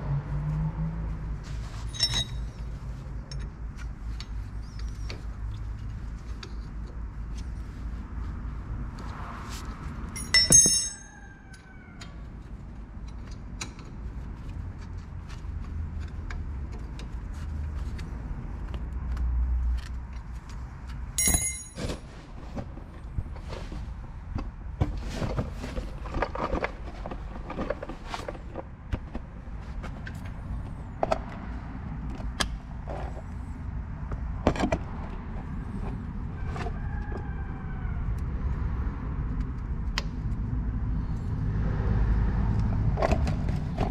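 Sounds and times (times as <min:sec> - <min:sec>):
metal tools clinking: 0:01.8 - 0:02.7, 0:10.2 - 0:11.2, 0:21.2 - 0:22.1
sharp metallic clanks: 0:10.2 - 0:11.2, 0:21.2 - 0:22.1.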